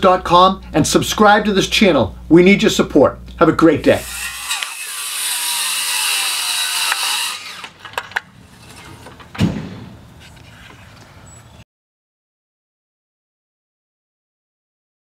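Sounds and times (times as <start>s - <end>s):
circular saw cutting wood: 3.8s - 7.8s
thump: 9.3s - 10.0s.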